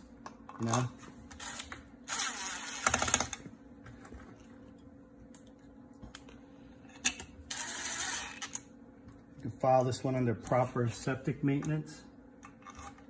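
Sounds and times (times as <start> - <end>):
cordless drill driving screws: 1.4 - 3.3.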